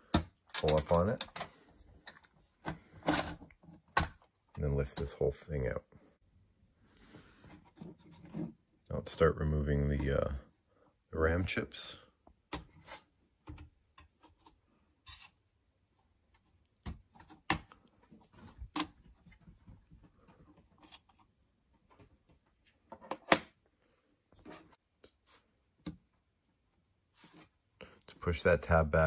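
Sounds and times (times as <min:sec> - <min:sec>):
clicks of plastic tabs: 0:00.1 - 0:04.2.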